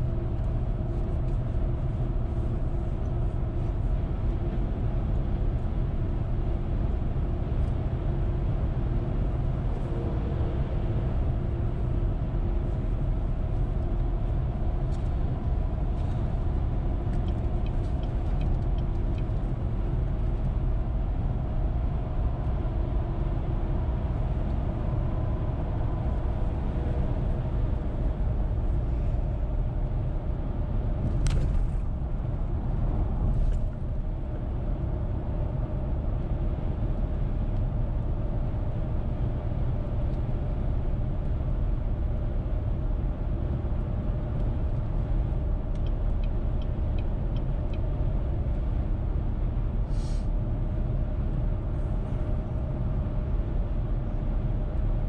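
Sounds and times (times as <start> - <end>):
car tyre and engine rumble: 0.0 - 55.0.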